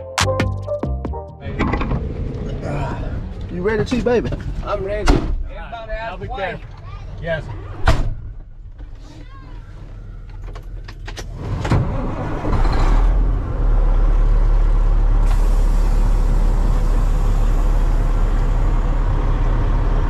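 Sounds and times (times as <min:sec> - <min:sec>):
diesel truck engine starting: 0:09.8 - 0:20.0
diesel engine idling: 0:13.2 - 0:20.0.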